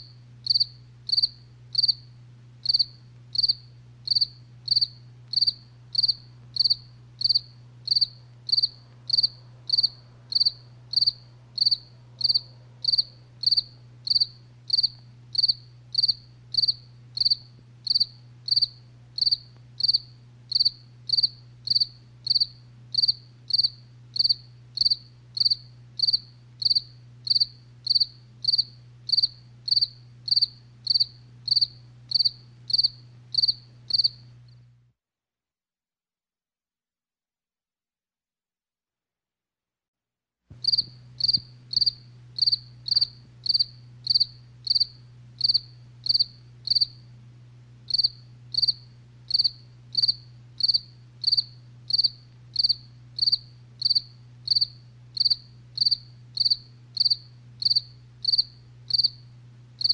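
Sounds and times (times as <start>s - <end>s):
cricket chirping: 0.0s - 34.3s, 40.6s - 47.1s, 47.9s - 59.9s
low steady hum: 0.0s - 34.9s, 40.5s - 59.9s.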